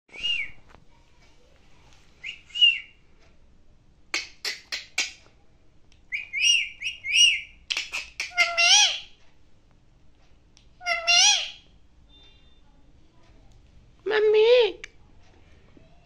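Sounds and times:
parakeet harsh clicks: 4.1 - 5.3, 7.7 - 9.0
parakeet whistled calls: 6.1 - 9.1, 10.8 - 11.6.

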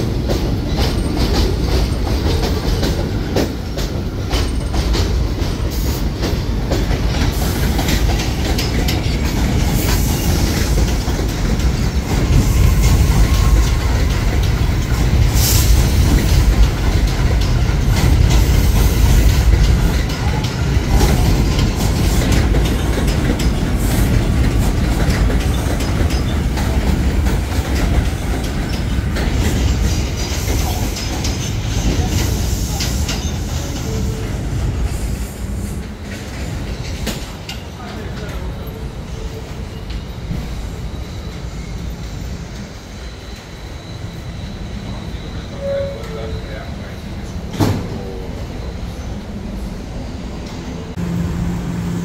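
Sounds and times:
train rumbling on rails: 0.0 - 52.0
wheels clicking over rail joints: 0.2 - 12.4, 13.4 - 34.2.

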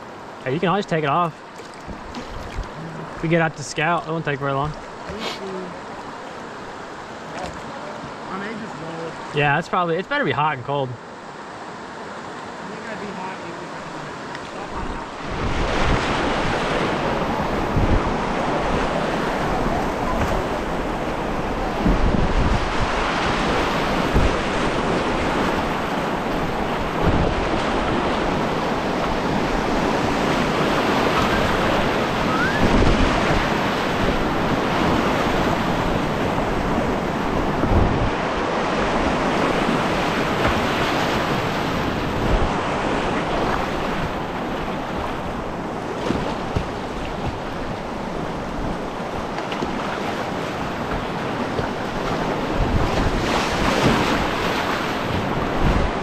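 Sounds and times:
kayak low thumps: 1.3 - 3.3, 39.2 - 42.6, 44.9 - 56.0
whitewater rushing: 11.6 - 56.0.

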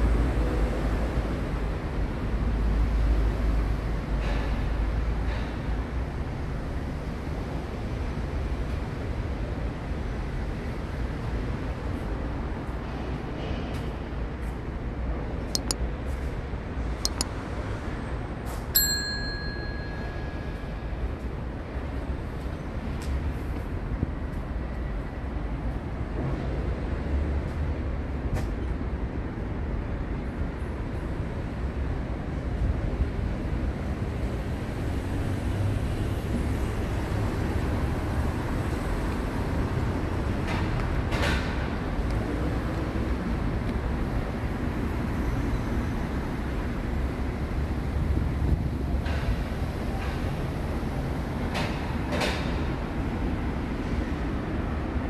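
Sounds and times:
low rumble of road traffic: 0.0 - 55.0
notification bell ding: 15.6 - 15.8, 18.8 - 20.7.

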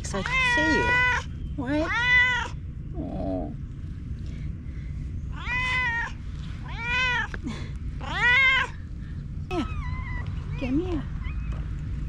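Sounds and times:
cat meowing: 0.2 - 2.6, 5.3 - 7.3, 8.0 - 8.8, 9.5 - 11.6.

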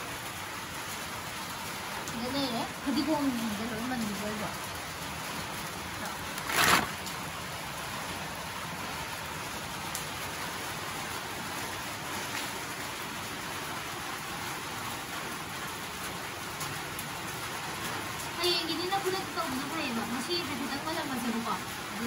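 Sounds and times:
rain hissing: 0.0 - 22.0
herbs rustling: 6.0 - 7.2.

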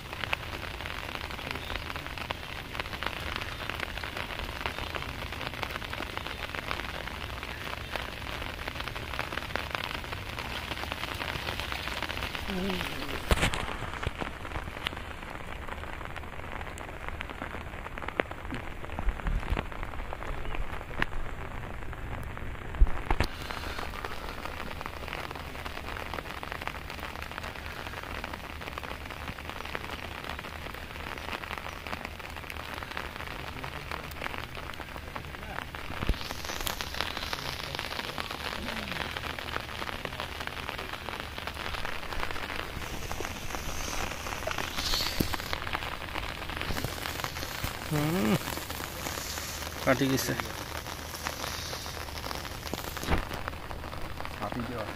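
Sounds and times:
rain falling on water: 0.0 - 54.9.

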